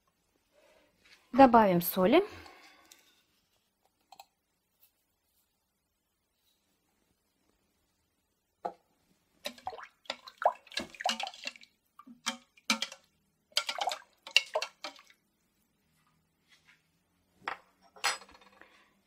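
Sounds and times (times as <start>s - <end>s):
water splashing lightly: 9.4s - 13.0s
metal spoon clinking on pot: 9.4s - 15.0s.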